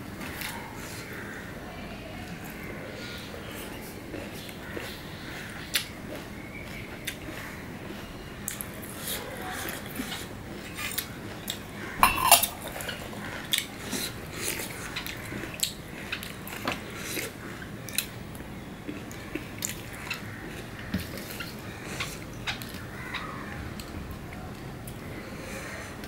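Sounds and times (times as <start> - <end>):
clinks on metal plate: 12.0 - 13.0.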